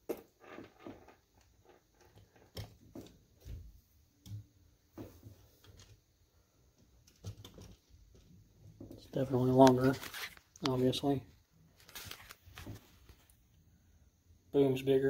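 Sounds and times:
soft thumps and clicks of handling: 0:00.1 - 0:06.1, 0:11.8 - 0:13.4.

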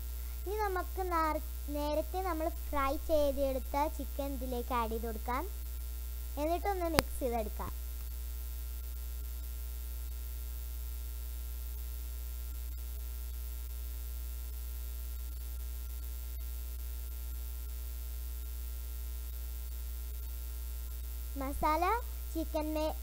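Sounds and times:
electrical mains hum: 0:00.0 - 0:23.0
faint ticks: 0:06.8 - 0:08.1.

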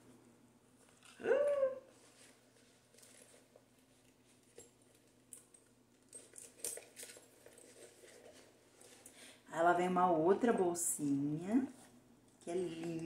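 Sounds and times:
handbag rustling: 0:02.0 - 0:03.6, 0:06.1 - 0:09.1
handbag hardware clicks: 0:05.3 - 0:07.6.

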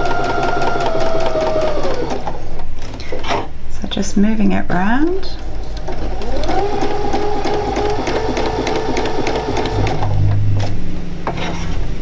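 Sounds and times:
sewing machine stitching: 0:00.0 - 0:02.3, 0:05.5 - 0:10.1.

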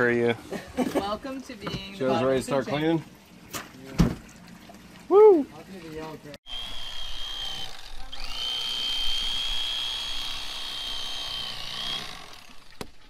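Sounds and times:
electric fillet knife whining: 0:06.4 - 0:13.0.

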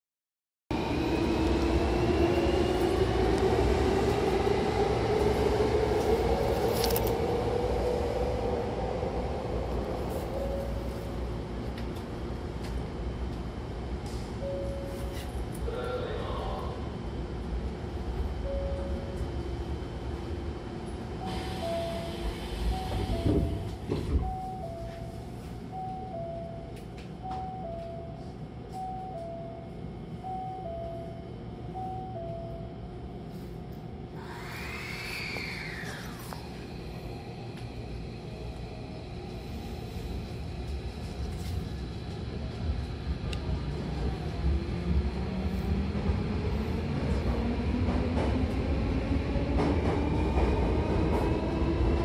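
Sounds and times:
low rumble of stopped train: 0:00.7 - 0:52.0.

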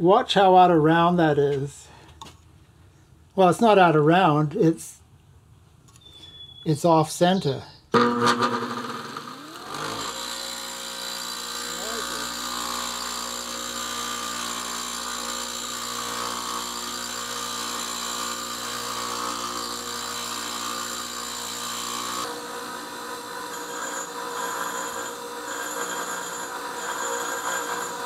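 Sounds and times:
bench grinder motor hum: 0:08.0 - 0:28.0.

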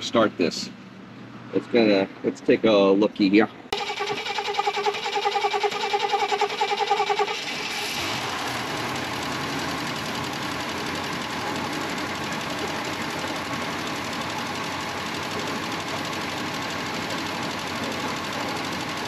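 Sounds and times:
car engine idling: 0:03.8 - 0:19.0
ticking engine clatter: 0:03.8 - 0:19.0.

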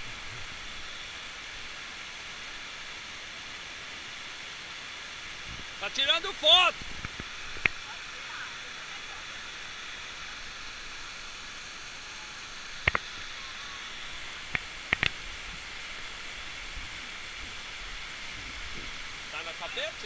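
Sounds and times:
waterfall rushing over rock: 0:00.0 - 0:20.0
sharp clicks: 0:14.5 - 0:15.2.

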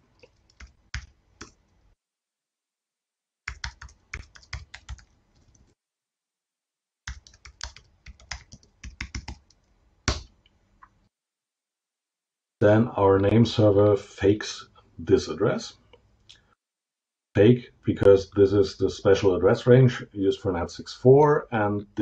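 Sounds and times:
computer keyboard keys clicking: 0:03.5 - 0:05.6, 0:07.1 - 0:10.2.

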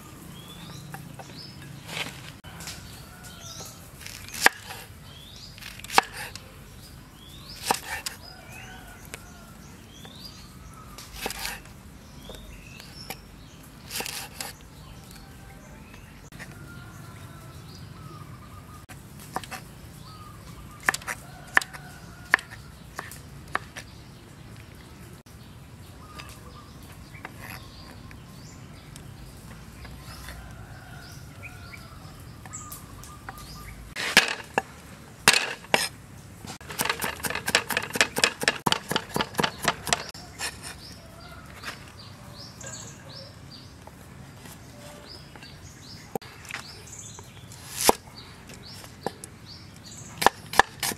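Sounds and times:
birds chirping faintly: 0:00.0 - 0:50.9
knife chopping on wooden board: 0:05.7 - 0:06.3, 0:07.6 - 0:08.1, 0:36.6 - 0:40.7, 0:47.7 - 0:48.0.

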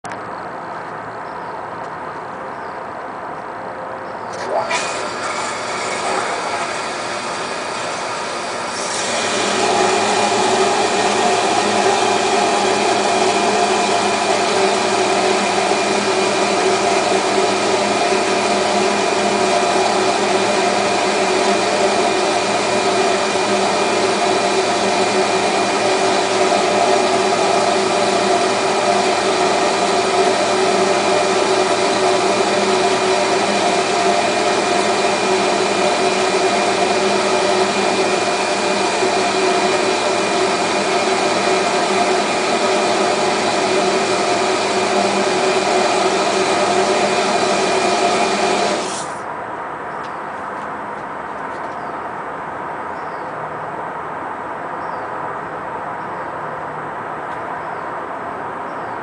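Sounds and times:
bubble generator pump humming: 0:04.3 - 0:49.5.

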